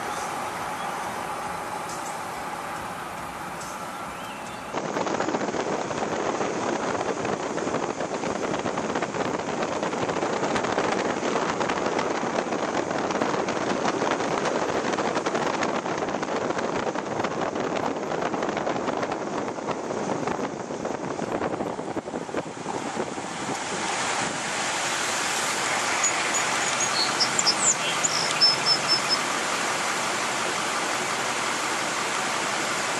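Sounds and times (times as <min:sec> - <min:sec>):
fast-flowing river rushing: 0:00.0 - 0:04.8, 0:22.2 - 0:32.9
wind noise on microphone: 0:00.0 - 0:32.9.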